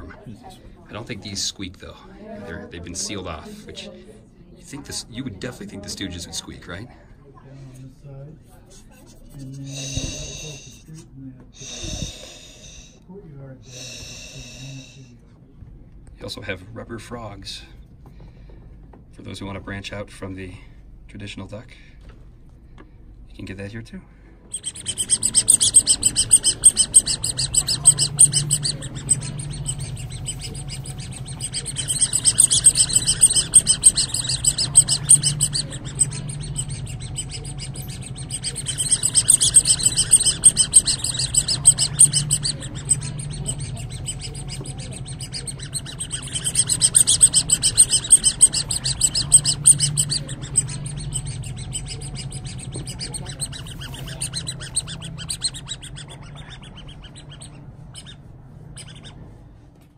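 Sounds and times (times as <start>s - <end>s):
steady low hum: 0.0s - 59.9s
high-pitched chirping trill: 24.5s - 58.2s.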